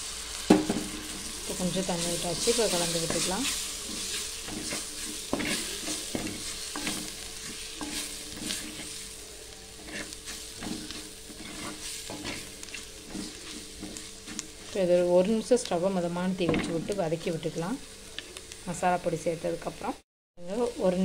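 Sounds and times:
frying sizzle: 0:00.0 - 0:21.0
spatula scraping metal pan: 0:01.2 - 0:14.8.

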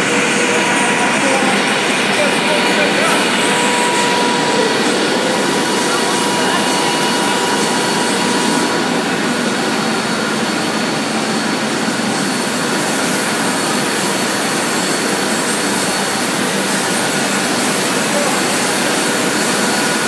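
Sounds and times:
machinery rushing hum: 0:00.0 - 0:20.0.

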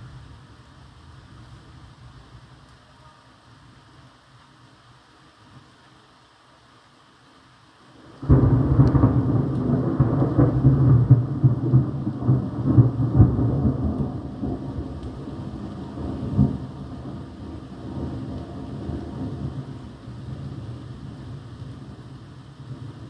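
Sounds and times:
low thunder rumble: 0:08.0 - 0:23.0
thunderclap: 0:08.2 - 0:19.7.

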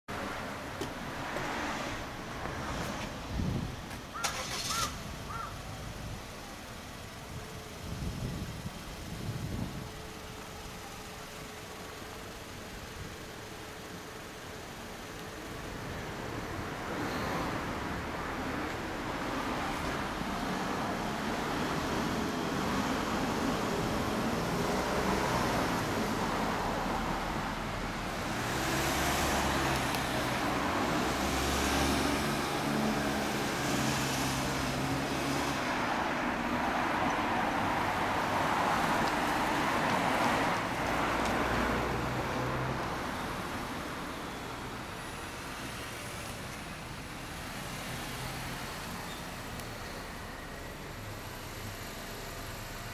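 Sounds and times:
cars driving past: 0:00.1 - 0:05.5, 0:15.2 - 0:52.9.

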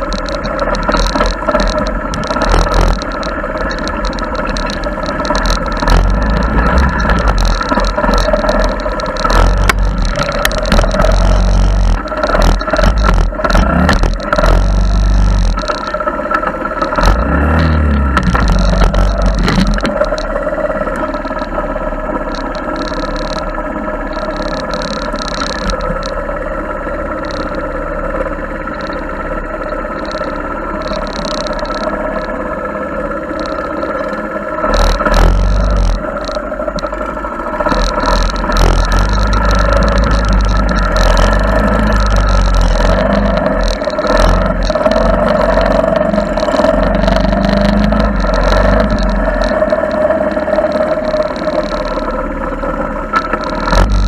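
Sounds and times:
engine knocks and rattles: 0:00.0 - 0:54.0
small engine running: 0:00.0 - 0:54.0.

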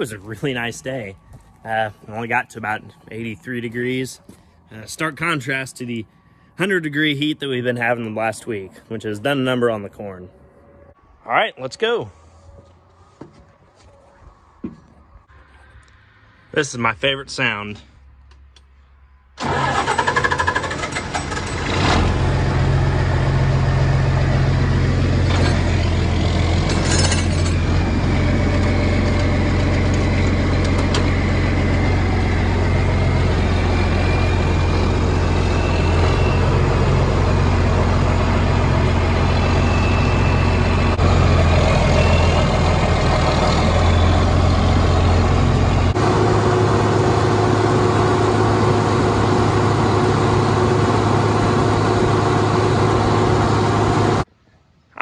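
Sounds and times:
diesel tractor engine starting and running: 0:00.0 - 0:09.6, 0:19.3 - 0:54.3
faint high whistle: 0:39.5 - 0:41.0.

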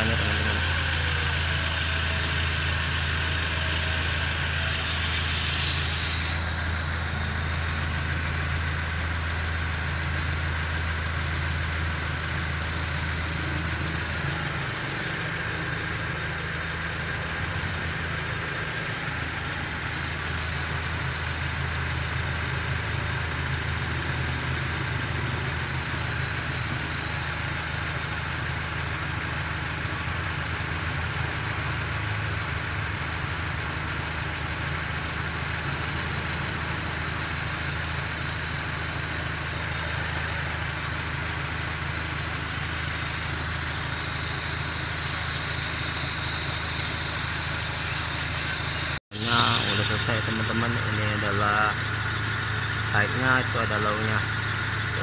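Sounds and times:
car engine idling: 0:00.0 - 0:55.0
high hiss of refrigerant flowing: 0:00.0 - 0:55.0.

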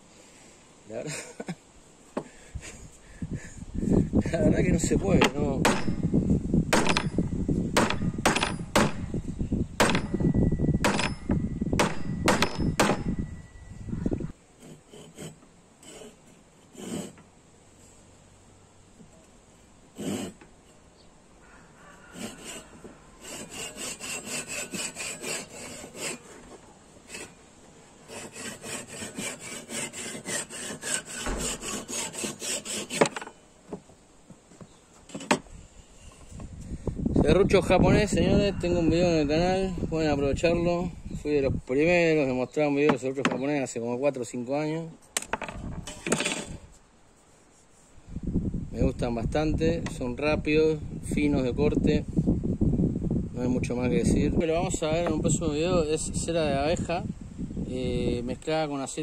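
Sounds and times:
wooden mallet knocking wood: 0:05.2 - 0:06.0, 0:06.7 - 0:07.2, 0:07.8 - 0:09.0, 0:10.8 - 0:13.1
hand saw cutting wood: 0:14.6 - 0:17.3, 0:19.9 - 0:20.4, 0:22.0 - 0:27.4, 0:28.0 - 0:33.4, 0:45.9 - 0:46.6.

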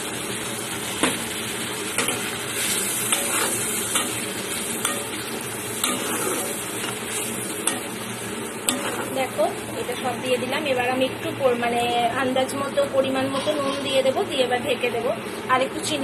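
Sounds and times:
food sizzling: 0:00.0 - 0:16.0
spatula scraping food in a pan: 0:02.0 - 0:07.9, 0:08.6 - 0:09.2
spatula clinking against pan: 0:04.8 - 0:05.2, 0:05.8 - 0:06.2, 0:07.6 - 0:08.0, 0:08.7 - 0:09.1.

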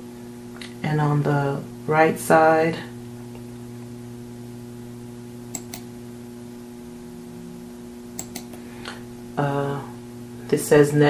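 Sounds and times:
electrical mains hum: 0:00.0 - 0:11.0
computer mouse clicks: 0:05.5 - 0:05.9, 0:08.2 - 0:08.6.

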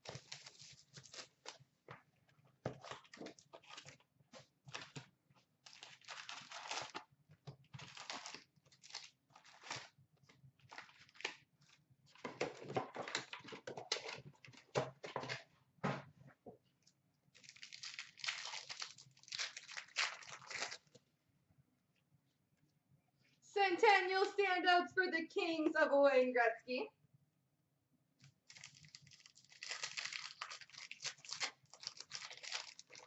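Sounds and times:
foil wrapper crinkling and tearing: 0:00.0 - 0:01.6, 0:04.7 - 0:07.1, 0:07.7 - 0:10.0, 0:10.6 - 0:11.4, 0:17.4 - 0:21.0, 0:28.4 - 0:33.0.

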